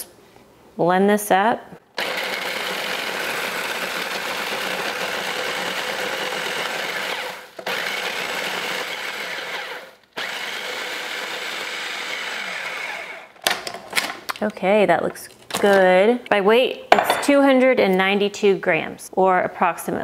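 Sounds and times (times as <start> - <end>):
food processor motor grinding: 2.0 - 13.4.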